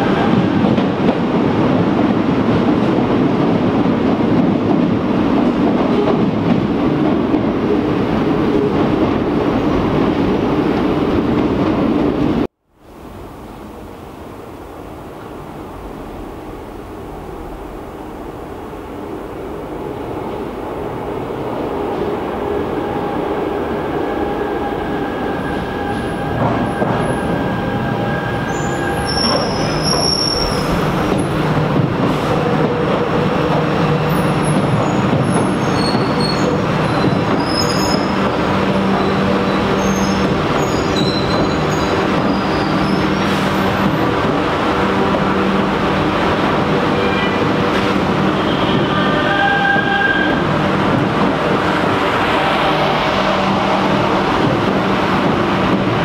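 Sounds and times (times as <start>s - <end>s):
train rumbling in tunnel: 0.0s - 56.0s
high-pitched wheel squeals: 39.0s - 43.0s.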